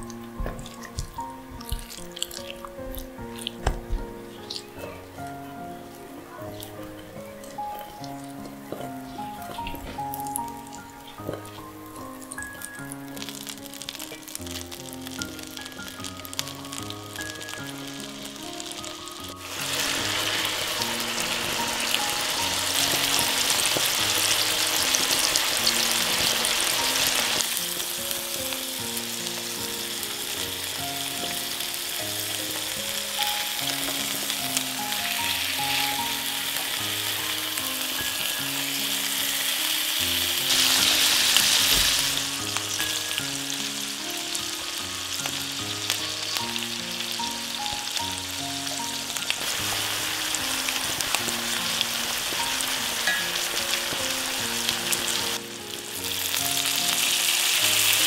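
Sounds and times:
chicken sizzling in oil: 0:00.0 - 0:58.0
soft background music: 0:00.0 - 0:58.0.

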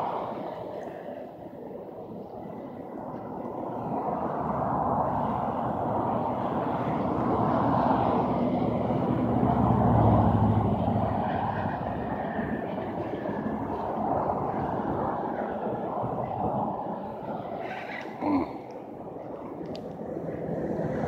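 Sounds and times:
passing vehicle engine: 0:05.3 - 0:13.7.

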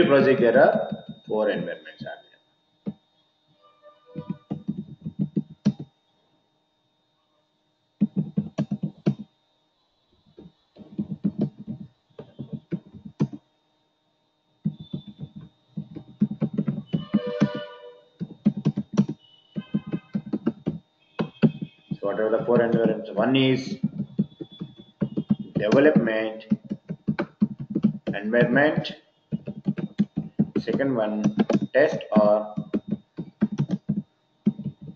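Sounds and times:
computer keyboard typing: 0:04.2 - 0:05.9, 0:08.0 - 0:09.3, 0:10.8 - 0:13.4, 0:14.6 - 0:34.9.

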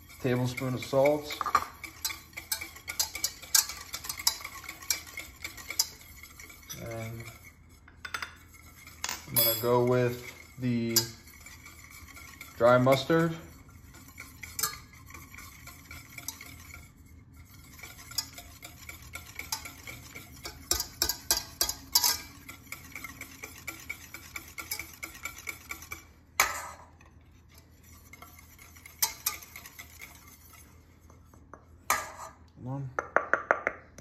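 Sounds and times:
whisk knocking on pot: 0:00.0 - 0:26.8, 0:27.8 - 0:32.1, 0:33.0 - 0:34.0
whisk clicking on a metal pot: 0:00.0 - 0:32.5.

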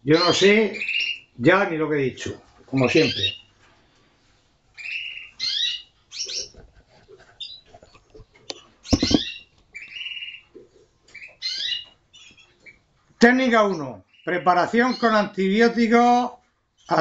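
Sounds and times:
canaries chirping and trilling: 0:00.1 - 0:01.3, 0:02.8 - 0:03.5, 0:04.7 - 0:16.2.

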